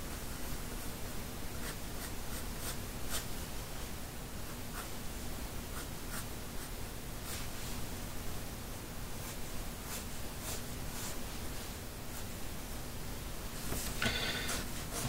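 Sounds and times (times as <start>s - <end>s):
pencil scratching on paper: 1.6s - 3.3s, 5.7s - 6.7s, 13.8s - 15.0s.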